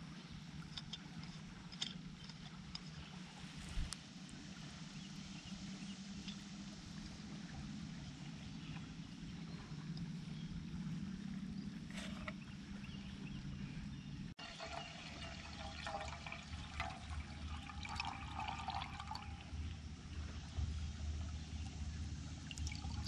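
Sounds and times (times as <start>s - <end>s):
low steady hum: 0.0s - 23.0s
water splashing into metal mug: 14.4s - 19.2s.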